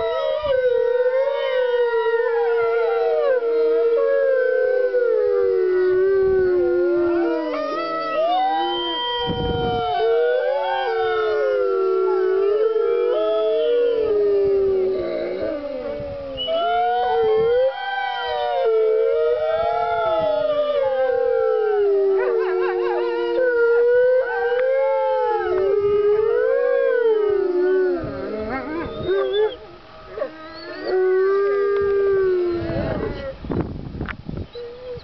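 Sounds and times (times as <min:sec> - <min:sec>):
wolves howling in chorus: 0:00.0 - 0:33.4.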